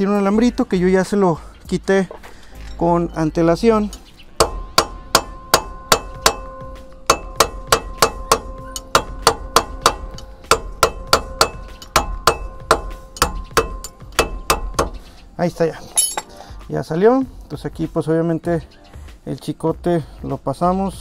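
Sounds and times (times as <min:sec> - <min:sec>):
hammer tapping on metal: 0:03.9 - 0:15.1.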